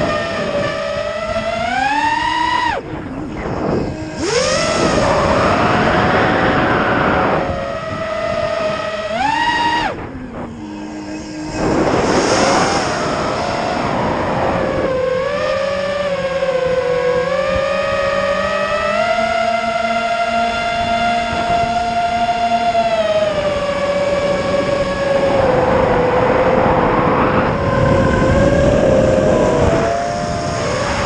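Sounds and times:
quadcopter motors whining: 0.0s - 31.0s
rush of air: 9.7s - 14.7s.

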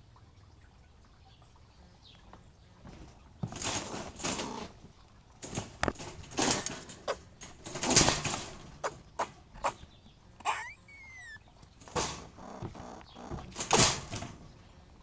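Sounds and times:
squirrel rattling wire cage: 3.4s - 4.8s, 5.4s - 14.7s.

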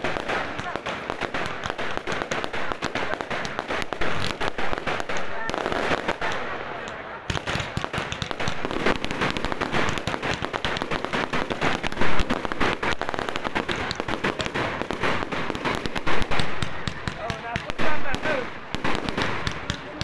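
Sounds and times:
fireworks popping and crackling: 0.0s - 20.0s.

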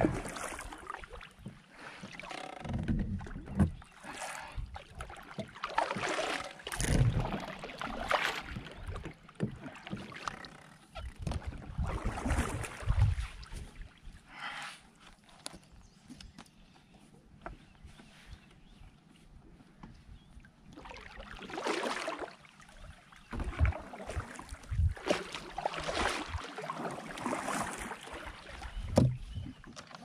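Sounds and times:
paddle splashing in water: 0.0s - 14.0s, 20.6s - 30.0s.

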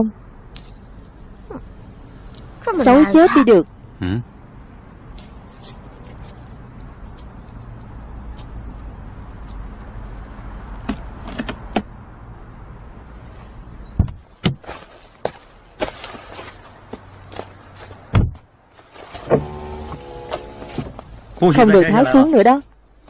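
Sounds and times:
light clicks and jingles: 5.1s - 7.7s, 22.4s - 23.0s
car door opening and shutting: 18.1s - 21.4s
car interior hum: 18.9s - 23.0s.

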